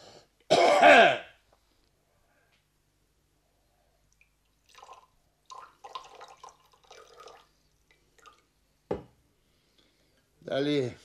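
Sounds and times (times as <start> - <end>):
liquid poured into a cup: 4.2 - 8.5.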